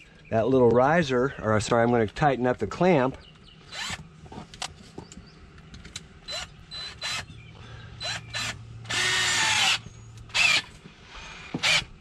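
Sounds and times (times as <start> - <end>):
cordless drill running: 6.3 - 7.3, 8.0 - 12.0.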